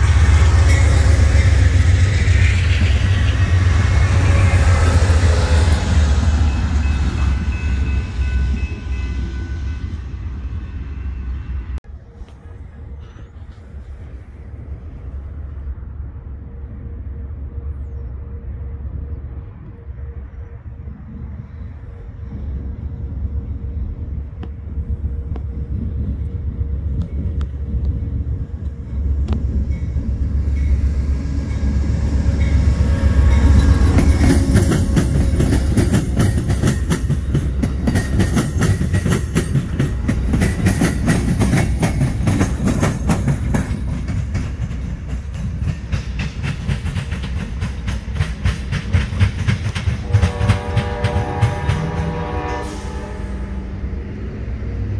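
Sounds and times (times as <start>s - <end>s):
train rumble: 0.0s - 54.9s
wheels clacking over rail joints: 28.6s - 52.2s
train horn chord: 50.0s - 53.8s.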